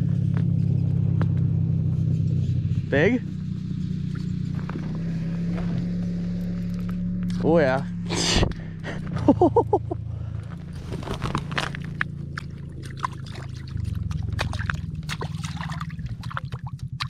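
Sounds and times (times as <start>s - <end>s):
low hum: 0.0s - 17.0s
hand sloshing in slushy water: 10.8s - 17.0s.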